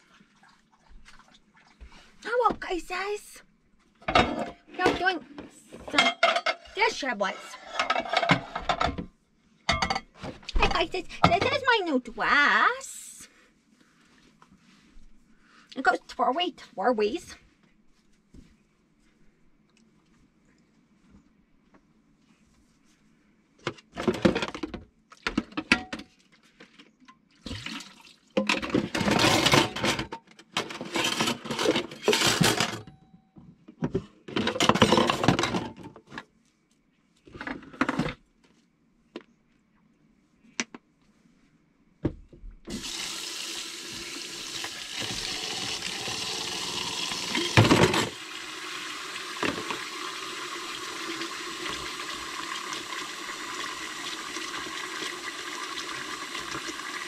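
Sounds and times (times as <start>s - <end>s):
water running into sink: 42.7s - 57.0s
tap water splashing into sink: 49.2s - 57.0s.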